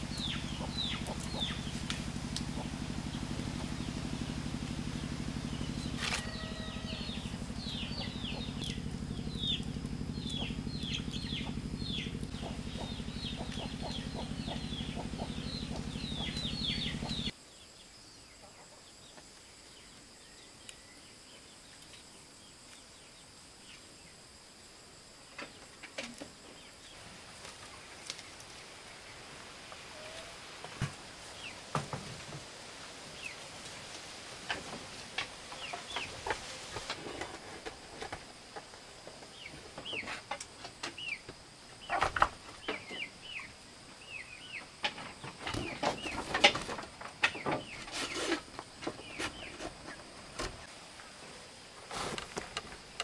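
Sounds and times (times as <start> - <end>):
low pulsing drone: 0.0 - 17.3.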